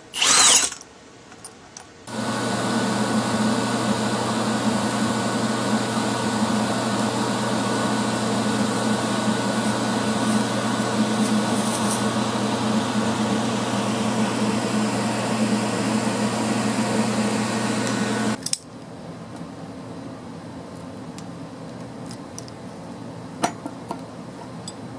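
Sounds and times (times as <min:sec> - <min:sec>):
welder arc hissing and humming: 0:02.1 - 0:18.4.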